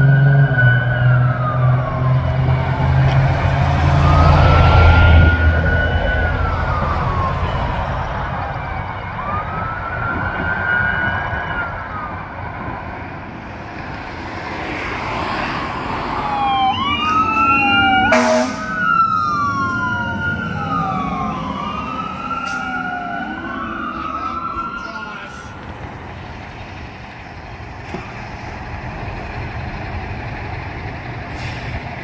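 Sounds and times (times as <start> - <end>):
fire engine sirens wailing: 0.0 - 32.0
loud horn blast: 18.0 - 18.8.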